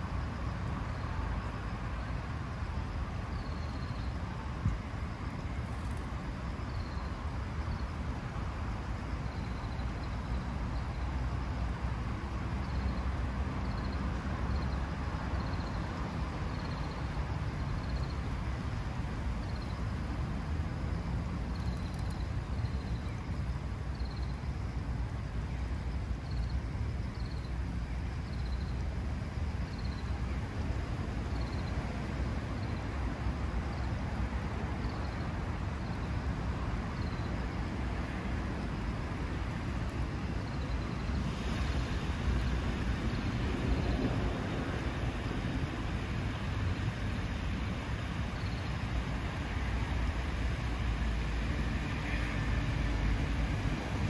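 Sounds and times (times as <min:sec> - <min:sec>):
fountain water splashing: 0:37.6 - 0:54.0.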